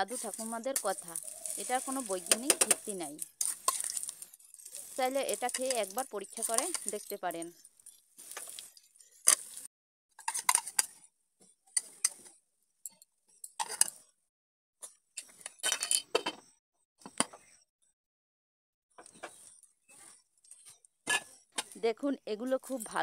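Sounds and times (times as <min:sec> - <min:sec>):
spoon scraping frying pan: 0:00.0 - 0:11.0, 0:13.4 - 0:14.0, 0:20.0 - 0:21.8.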